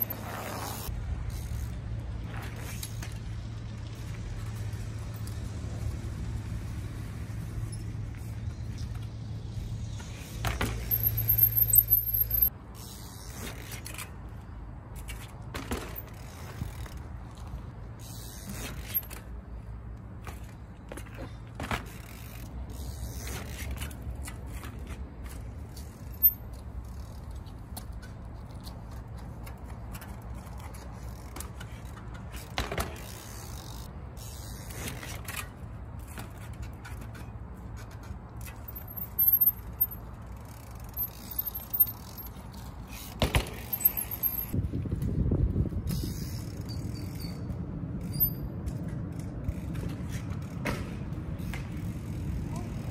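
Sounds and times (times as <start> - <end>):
bike chain rattle: 0.0 - 3.3, 6.6 - 44.6, 45.9 - 50.7.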